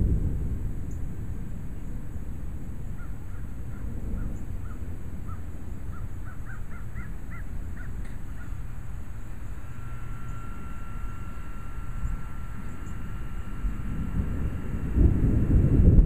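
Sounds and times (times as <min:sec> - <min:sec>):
low steady rumble: 0:00.0 - 0:16.0
bird calling: 0:02.0 - 0:14.1.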